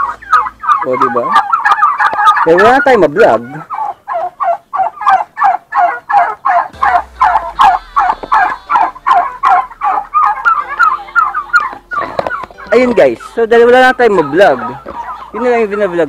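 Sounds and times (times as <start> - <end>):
turkeys calling: 0.0 - 16.0.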